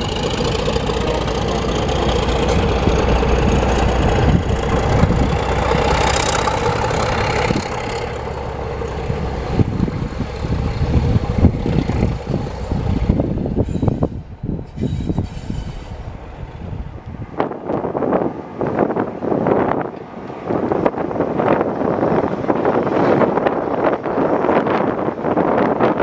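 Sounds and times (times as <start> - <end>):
train wheels clicking on track: 0.0 - 18.0
diesel locomotive engine: 0.0 - 26.0.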